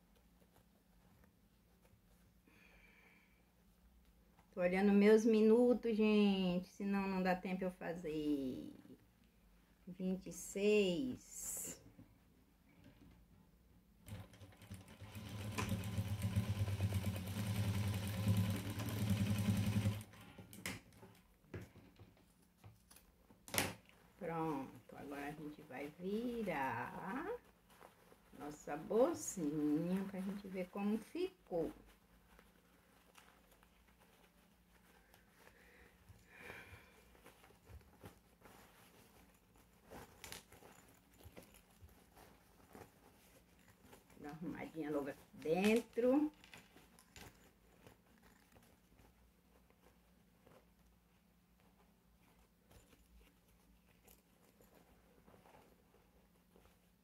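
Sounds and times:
fabric rustling: 0.0 - 2.8, 21.0 - 57.0
sewing machine stitching: 14.1 - 20.2.

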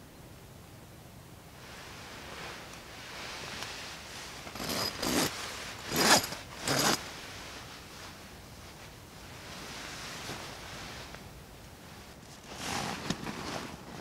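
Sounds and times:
fabric rustling: 1.6 - 14.0
zipper pulls: 4.5 - 7.0, 12.4 - 14.0.

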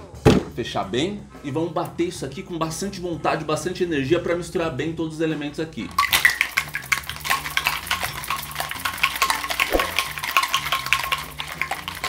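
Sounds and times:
ice rattling in cocktail shaker: 5.9 - 12.0.

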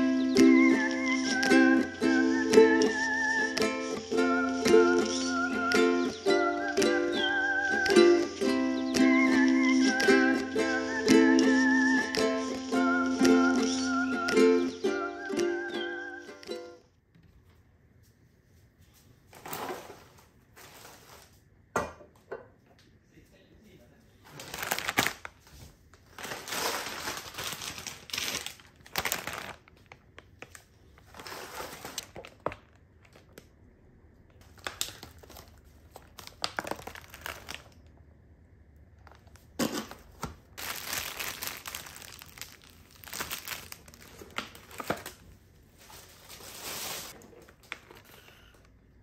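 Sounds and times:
plastic packaging crinkling: 24.3 - 33.5, 34.4 - 38.0, 39.0 - 48.6.

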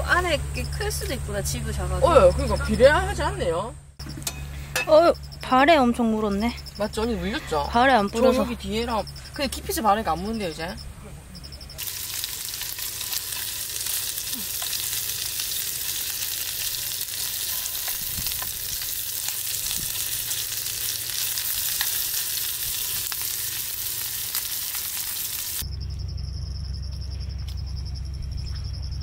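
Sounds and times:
beef sizzling in a pan: 11.8 - 25.6.

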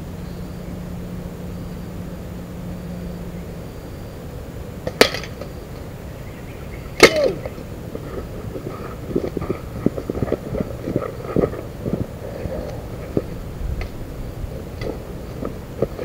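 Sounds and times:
footsteps on leafy dirt path: 5.5 - 16.0
slingshot shots smacking target: 7.0 - 7.4.

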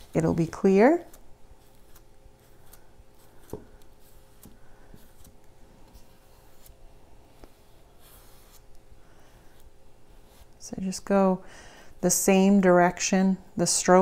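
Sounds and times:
brush strokes scratching: 0.0 - 11.0.

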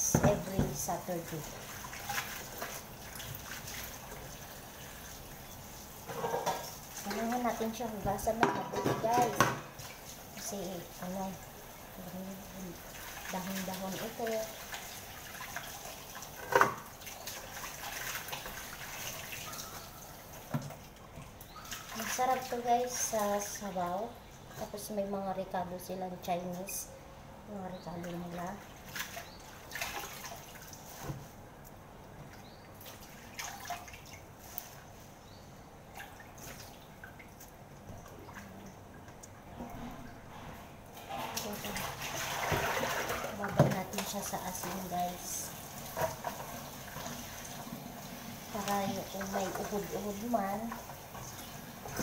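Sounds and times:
greens rinsed and shaken: 0.0 - 20.9, 21.7 - 26.8, 27.8 - 31.4, 41.0 - 52.0
water drips and small splashes: 0.0 - 25.3, 27.6 - 52.0.

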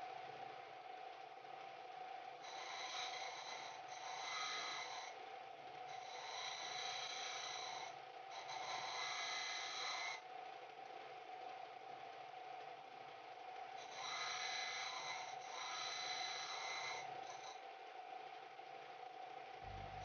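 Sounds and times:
disc sander humming: 14.1 - 20.0.

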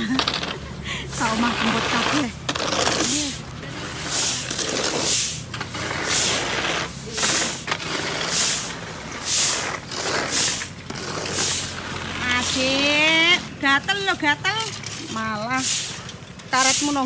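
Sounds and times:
broom sweeping grain on tiles: 1.1 - 13.2, 15.5 - 17.0.

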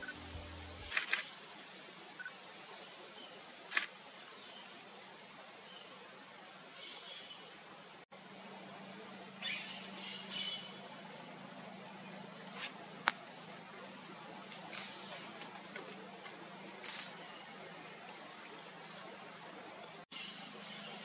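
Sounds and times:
insect chorus: 0.0 - 21.0
sharp click: 3.7 - 3.9.

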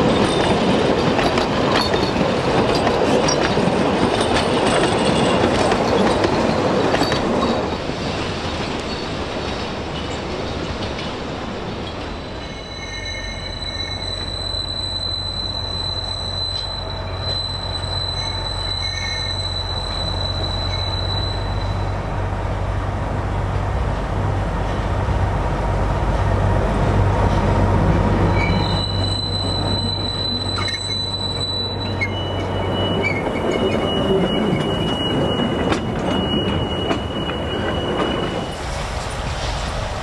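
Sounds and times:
steel wheel squeal: 11.8 - 22.0, 28.2 - 38.7.

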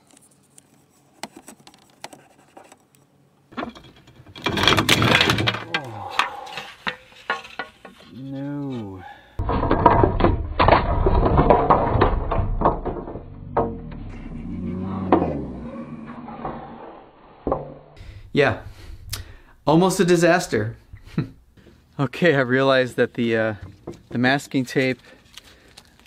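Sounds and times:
window frame and glass clattering: 3.5 - 8.0
person crying out: 5.6 - 6.5.

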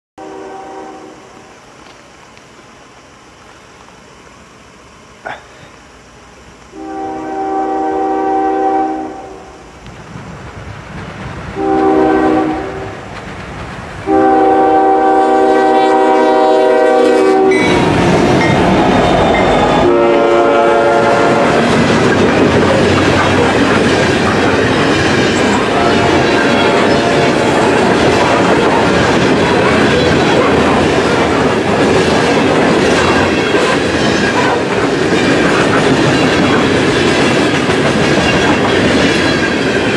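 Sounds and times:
locomotive air horn blasts: 0.2 - 1.5, 6.7 - 9.6, 11.6 - 13.0, 14.0 - 18.1, 19.2 - 21.6, 25.6 - 28.7
train rumble: 0.2 - 39.9
freight cars clickety-clack: 12.9 - 14.1, 21.3 - 39.9.

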